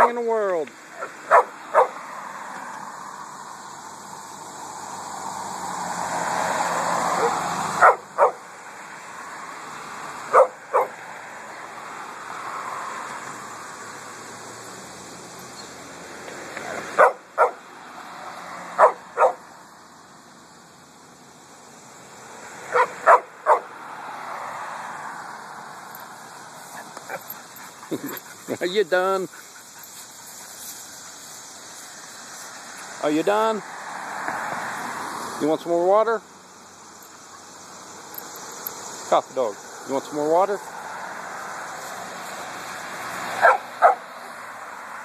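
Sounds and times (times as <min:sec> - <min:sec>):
passing vehicles: 0:00.0 - 0:45.0
small dog yapping: 0:01.0 - 0:02.0, 0:17.0 - 0:17.6, 0:18.8 - 0:19.4, 0:43.4 - 0:44.1.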